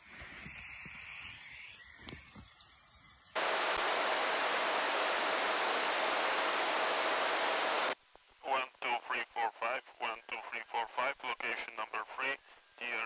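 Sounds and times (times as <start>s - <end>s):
radio static hiss: 3.4s - 13.0s.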